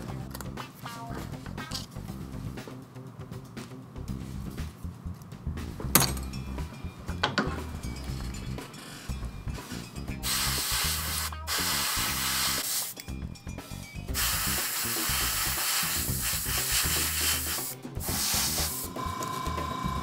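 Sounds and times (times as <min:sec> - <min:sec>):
airbrush spraying hiss: 0:09.6 - 0:13.0, 0:14.1 - 0:19.0.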